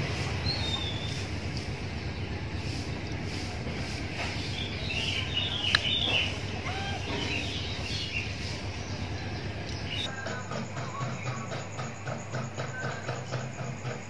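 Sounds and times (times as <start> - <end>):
steady low rumble: 0.0 - 10.1
birds chirping: 0.0 - 14.0.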